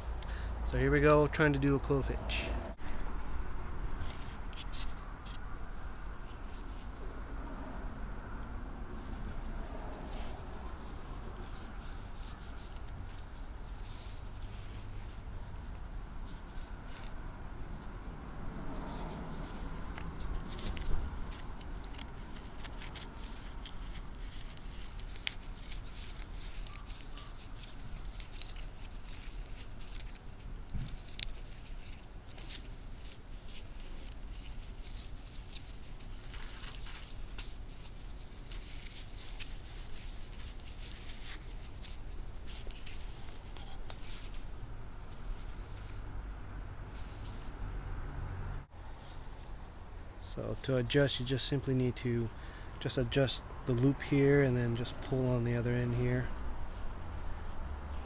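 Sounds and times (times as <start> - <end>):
nylon webbing rustling and sliding: 4.0 - 5.4, 6.2 - 7.7, 8.9 - 46.1, 46.9 - 47.7.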